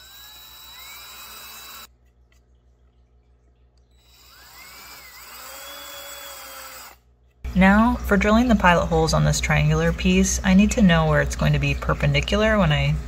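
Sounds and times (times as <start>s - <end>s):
cordless drill whining: 0.0s - 1.9s, 4.0s - 7.0s.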